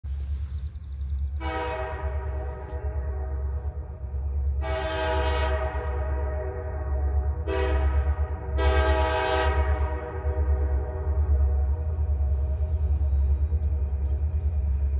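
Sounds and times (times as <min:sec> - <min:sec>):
distant locomotive air horn: 0:01.4 - 0:12.4.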